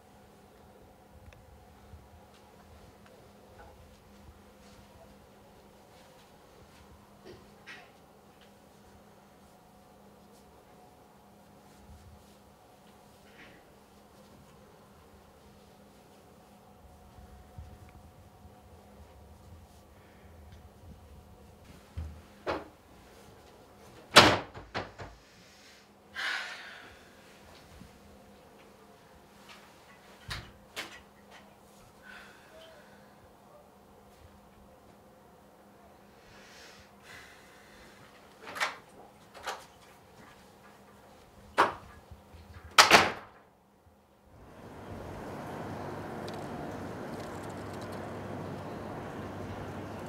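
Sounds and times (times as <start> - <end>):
wooden door slamming: 24.2 - 25.2
rushing background noise: 44.4 - 50.0.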